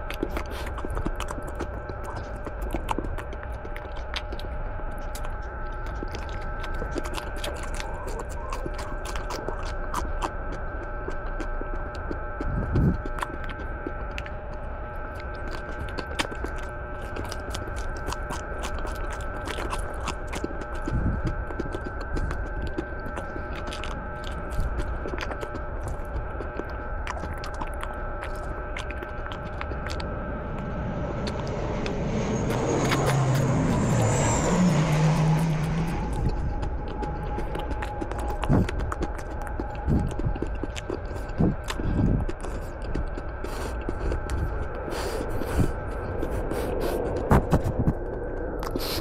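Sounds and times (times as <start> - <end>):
person chewing crisp leaves: 0.0 - 49.0
steady background hum: 0.0 - 49.0
motor vehicle passing: 29.8 - 36.9.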